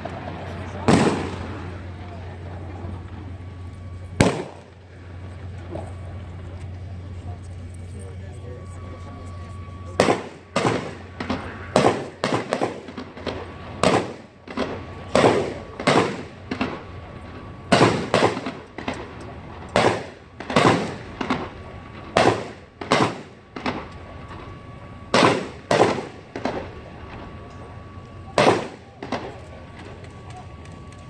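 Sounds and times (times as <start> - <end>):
gunshots echoing: 0.2 - 1.8, 4.2 - 4.8, 10.0 - 16.8, 17.7 - 19.1, 19.8 - 21.5, 22.1 - 23.9, 25.1 - 26.7, 28.4 - 29.4.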